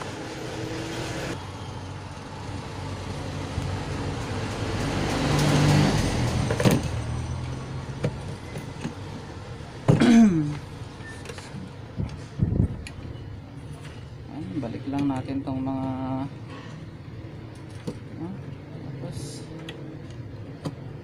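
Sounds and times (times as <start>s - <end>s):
vehicle passing by: 0.0s - 8.0s.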